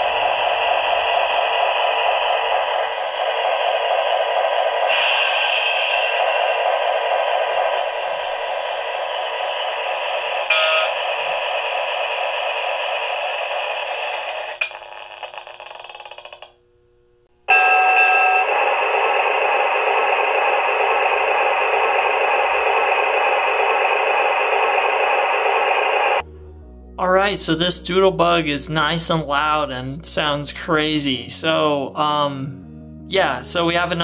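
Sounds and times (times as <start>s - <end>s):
model diesel locomotive engine sound: 0.0s - 15.8s, 17.5s - 26.2s
electronic tone: 0.0s - 16.5s, 17.5s - 26.3s.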